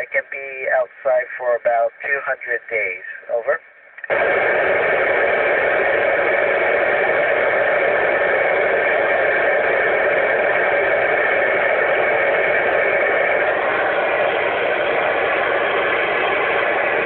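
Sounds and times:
radio static hiss: 0.0 - 17.0.

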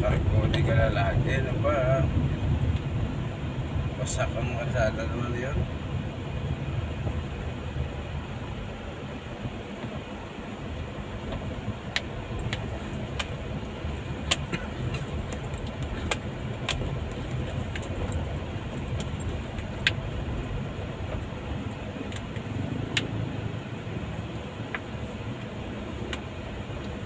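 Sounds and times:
engine and tyres rumbling: 0.0 - 27.0
sharp clicks and rattles: 11.3 - 23.2.

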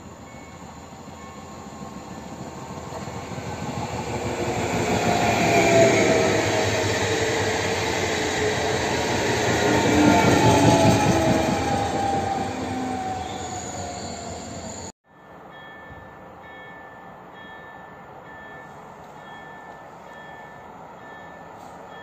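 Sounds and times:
train wheel and running noise: 0.0 - 14.9.

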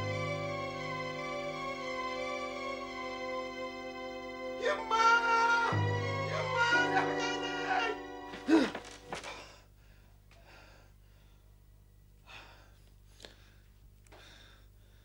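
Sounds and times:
man gasping: 8.4 - 11.5
man breathing heavily: 8.4 - 11.6, 12.2 - 15.0.

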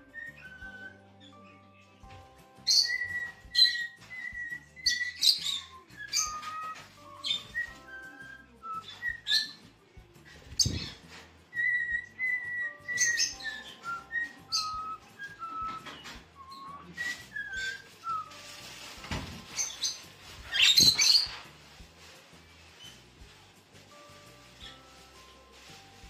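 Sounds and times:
parrots whistling and chirping: 0.0 - 1.7, 2.4 - 21.8, 22.6 - 23.1, 23.9 - 26.0.

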